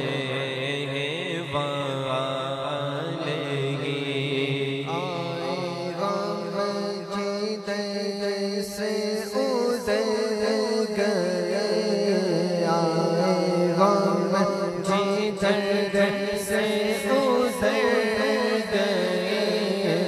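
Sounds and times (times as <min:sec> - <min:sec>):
man singing into a microphone: 0:00.0 - 0:20.0.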